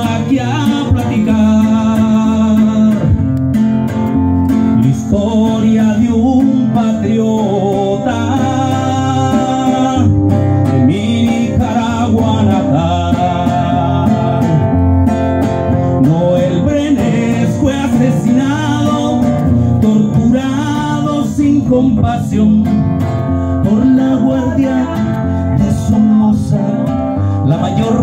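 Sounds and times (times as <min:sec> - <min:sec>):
acoustic guitar strumming: 0:00.0 - 0:28.0
person singing: 0:04.8 - 0:14.8, 0:16.0 - 0:28.0.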